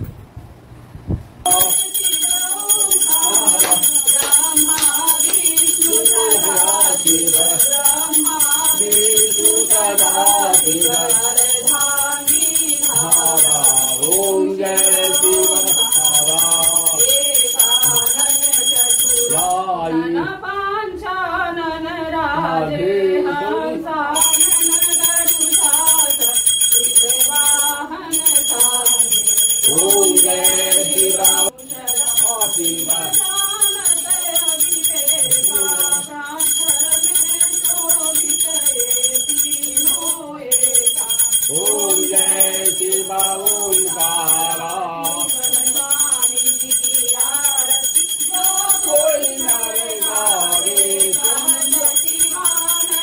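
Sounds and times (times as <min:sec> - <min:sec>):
bell ringing: 0:01.5 - 0:19.6, 0:24.2 - 0:53.0
devotional chant singing: 0:01.5 - 0:53.0.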